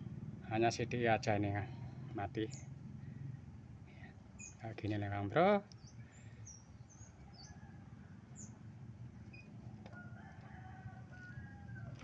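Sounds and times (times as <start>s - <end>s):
bird chirps: 4.4s - 4.7s, 5.7s - 7.6s.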